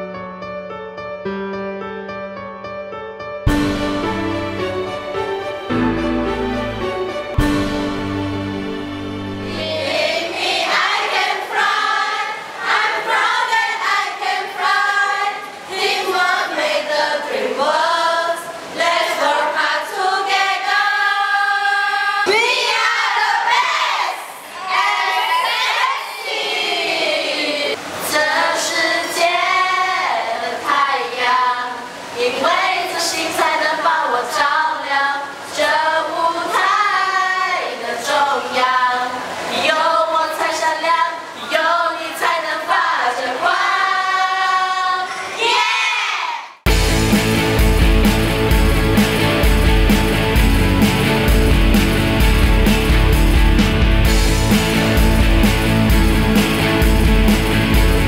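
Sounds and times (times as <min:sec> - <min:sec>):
female choir singing: 0:09.4 - 0:46.6.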